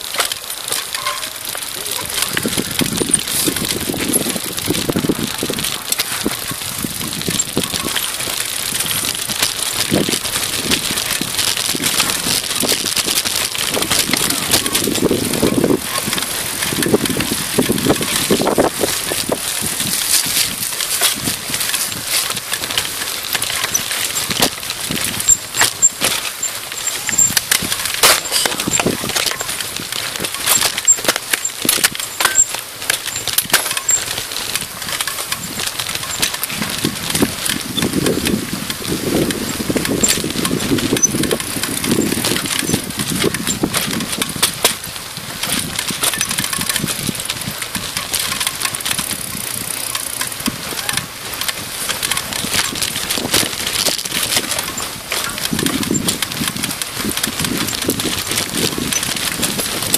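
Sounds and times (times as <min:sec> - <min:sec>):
bike rattling over stones: 0:00.0 - 0:59.9
wind on microphone: 0:01.4 - 0:22.8, 0:34.5 - 0:59.9.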